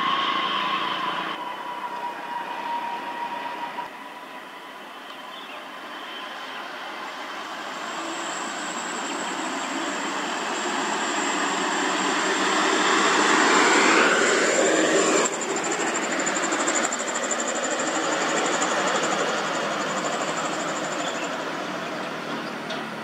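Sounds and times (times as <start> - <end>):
truck diesel engine passing: 7.1 - 23.0.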